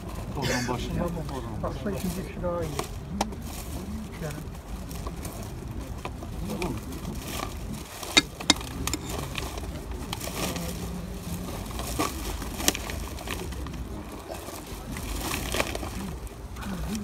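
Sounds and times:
hand hoe scraping soil: 8.2 - 9.4.

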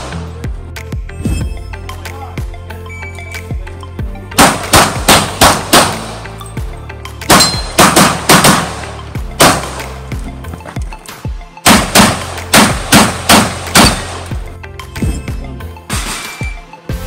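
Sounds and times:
background music: 0.0 - 17.0
pistol shots: 4.3 - 6.3, 7.2 - 10.0, 11.6 - 14.3.

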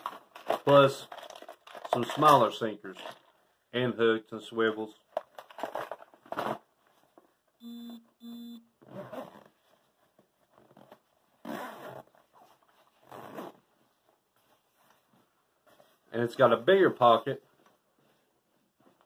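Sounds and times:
short humming tones: 7.6 - 8.7
zippers being pulled: 8.9 - 9.5, 10.6 - 12.2, 13.0 - 13.6.

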